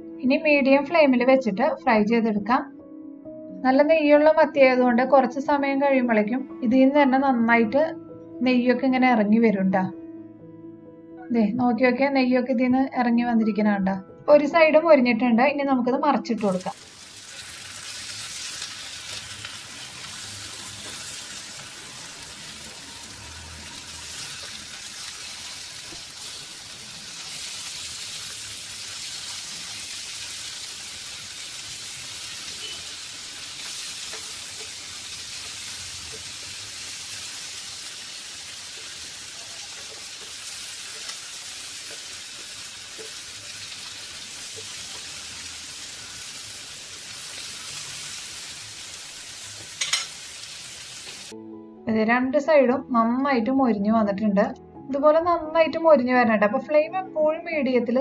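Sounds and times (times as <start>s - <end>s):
fish sizzling in a pan: 16.4s - 51.4s
utensils scraping and tapping: 49.8s - 50.2s.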